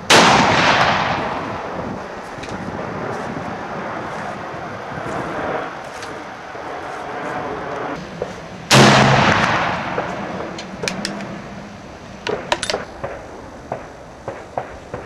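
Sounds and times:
rifle shot: 0:00.1 - 0:01.8, 0:08.7 - 0:11.0, 0:12.3 - 0:15.0
sharp clicks and knocks: 0:09.4 - 0:11.3, 0:12.2 - 0:15.0.

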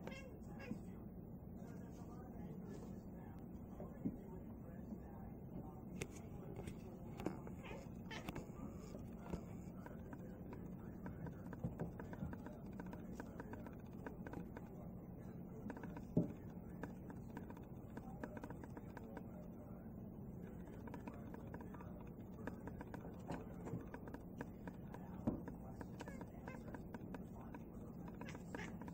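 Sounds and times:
steady low hum: 0:00.0 - 0:28.9
crows tapping on skylight: 0:09.0 - 0:14.9, 0:15.5 - 0:19.6, 0:20.4 - 0:28.9.

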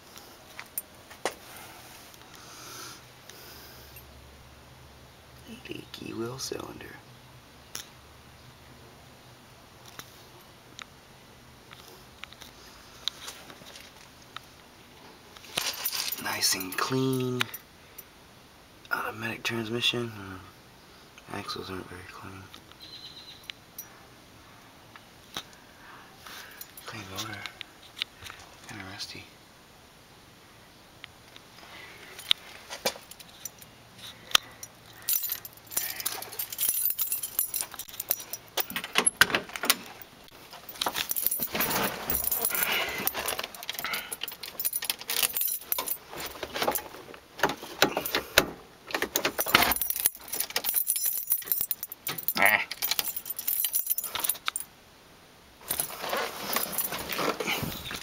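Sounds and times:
handling clicks and rustling: 0:11.7 - 0:17.6, 0:31.2 - 0:54.7, 0:55.6 - 0:58.0
keys jangling: 0:15.5 - 0:17.6, 0:32.2 - 0:54.7, 0:55.6 - 0:58.0.

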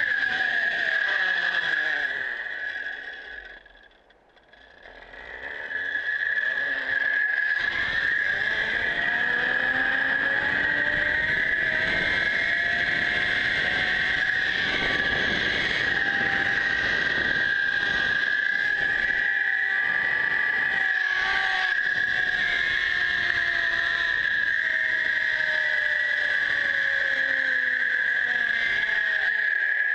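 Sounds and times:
pulley wheels whining on cable: 0:00.0 - 0:29.9
wind on microphone: 0:10.2 - 0:19.2.

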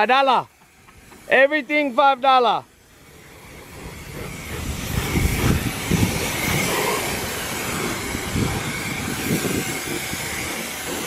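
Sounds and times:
pressure washer spraying water: 0:00.0 - 0:11.0
faint pump whine: 0:02.6 - 0:11.0.

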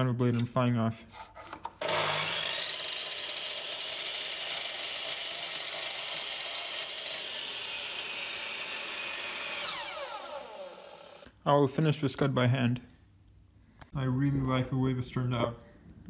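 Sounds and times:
electric chop saw cutting wood: 0:01.8 - 0:11.3
saw motor spinning down: 0:01.8 - 0:11.3.

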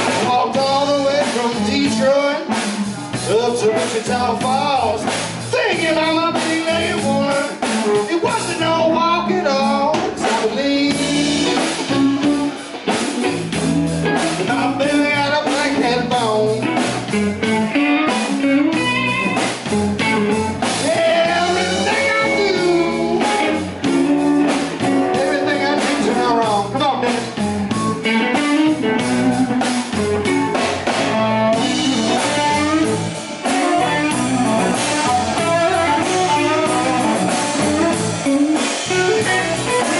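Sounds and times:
man singing: 0:00.0 - 0:12.5, 0:14.3 - 0:17.2, 0:20.6 - 0:27.5
drum kit: 0:00.0 - 0:39.9
electric bass: 0:00.0 - 0:39.9
electric guitars: 0:00.0 - 0:39.9.

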